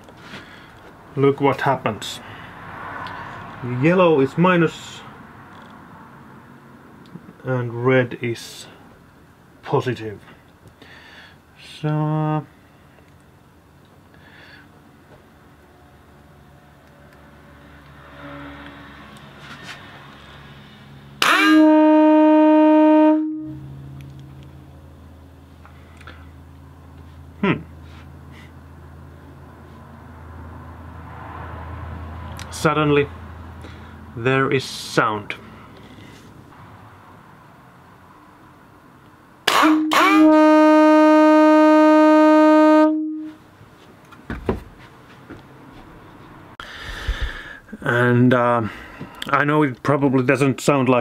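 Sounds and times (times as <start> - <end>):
air horn blast: 18.0 - 19.1, 21.2 - 23.9, 39.5 - 43.4.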